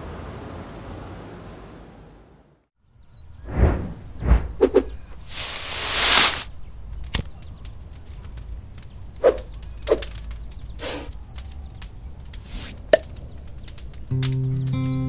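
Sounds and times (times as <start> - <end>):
rustling swish: 3.5 - 6.5.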